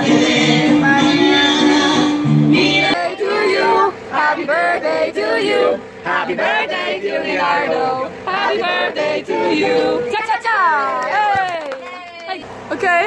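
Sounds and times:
people singing a celebration song: 0.0s - 10.4s.

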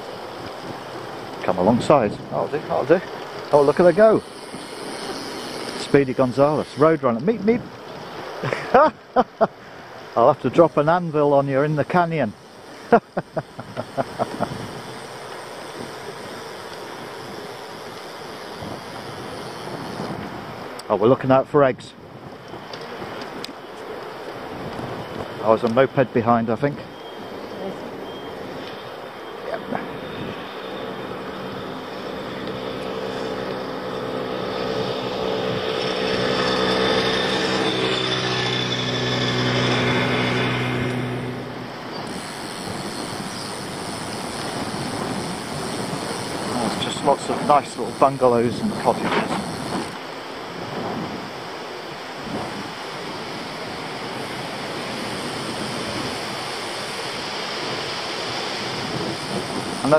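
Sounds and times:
wind rushing on microphone: 0.0s - 10.8s, 13.1s - 28.8s, 29.5s - 59.9s
moped engine passing: 1.4s - 7.0s, 29.6s - 50.0s.

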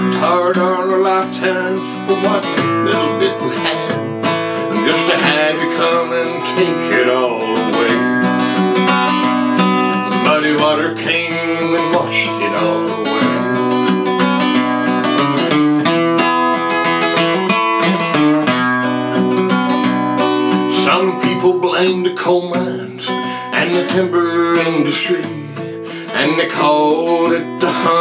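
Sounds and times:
acoustic guitar strumming: 0.0s - 28.0s.

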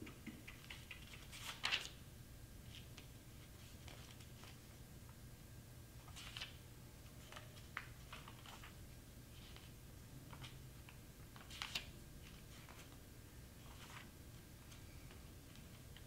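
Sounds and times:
low room hum: 0.0s - 16.0s
paper rustles: 0.6s - 2.0s, 2.6s - 4.7s, 6.0s - 6.6s, 7.2s - 10.6s, 11.3s - 13.0s, 13.6s - 16.0s.

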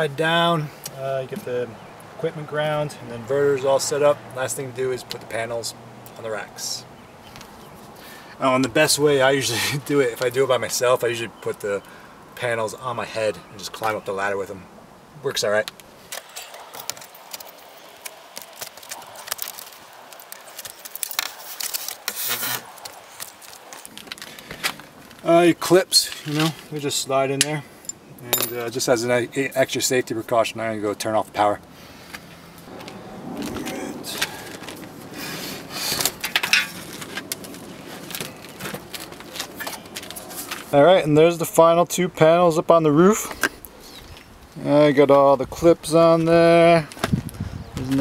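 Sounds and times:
footsteps in flip-flops on shingles: 15.6s - 25.4s, 32.1s - 40.8s, 46.2s - 48.0s
hands rubbing and scraping cable: 15.6s - 25.4s, 32.7s - 40.8s.

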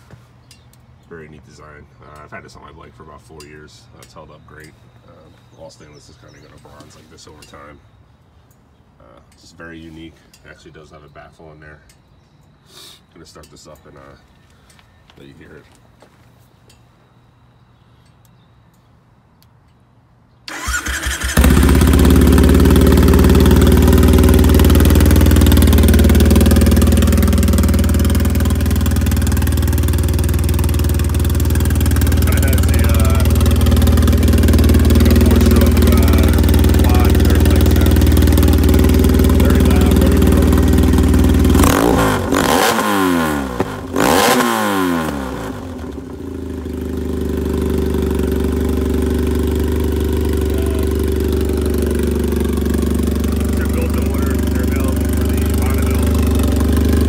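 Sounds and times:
motorcycle engine cranking: 20.5s - 57.0s
motorcycle engine idling and revving: 20.5s - 57.0s.

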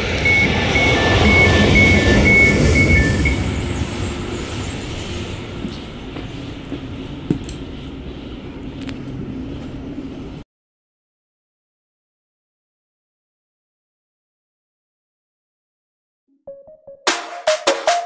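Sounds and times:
train rumbling: 0.0s - 10.4s
train door warning beeps: 0.1s - 3.6s.

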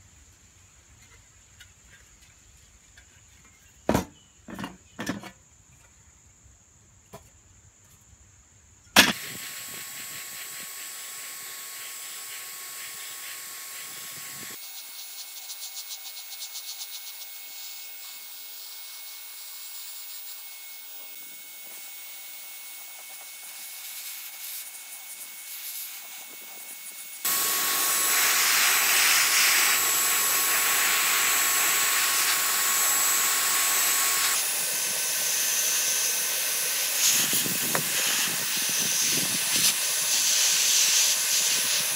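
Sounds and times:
spray gun hissing: 9.1s - 14.6s, 23.0s - 41.9s.

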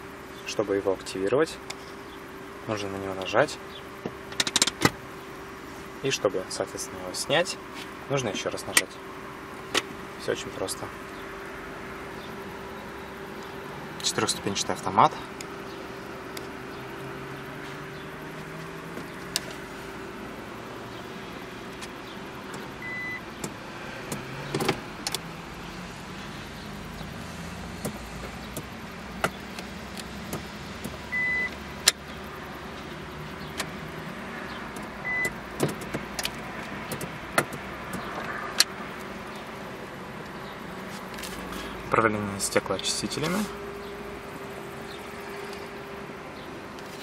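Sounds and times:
car engine idling: 0.0s - 47.0s
sharp clicks: 27.8s - 32.2s, 34.7s - 39.1s.

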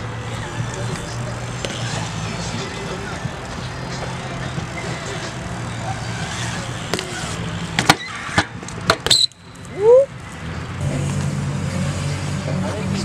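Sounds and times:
bike tyres rolling on concrete: 0.0s - 11.6s
bike clacking on concrete: 6.9s - 9.4s.

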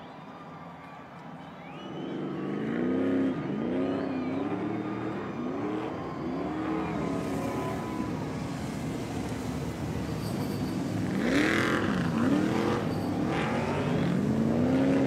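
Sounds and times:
truck engines revving hard: 1.6s - 15.0s.

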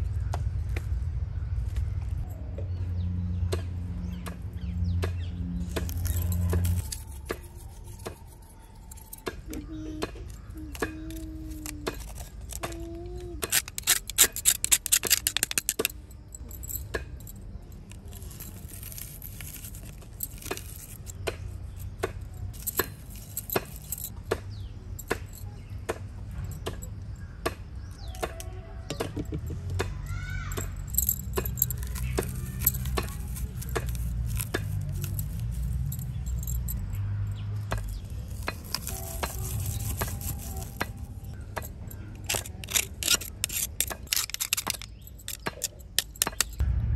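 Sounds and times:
rapid clicking and rattling: 13.4s - 16.8s, 42.1s - 46.6s
garlic rubbing on metal grater: 38.2s - 41.2s, 42.3s - 45.4s.

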